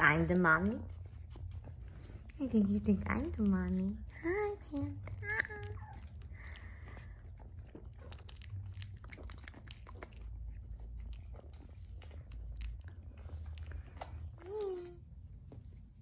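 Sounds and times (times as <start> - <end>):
puppy licking wet clicks: 2.2 - 14.6.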